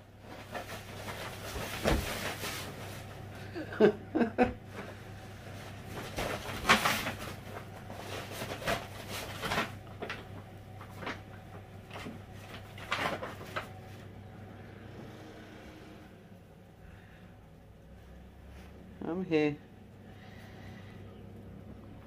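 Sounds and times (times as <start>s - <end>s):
plastic bags rustling: 0.2s - 3.6s, 4.6s - 14.0s.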